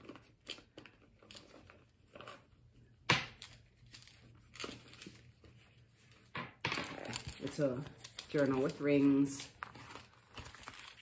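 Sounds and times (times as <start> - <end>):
packaging crinkling and tearing: 6.9 - 11.0.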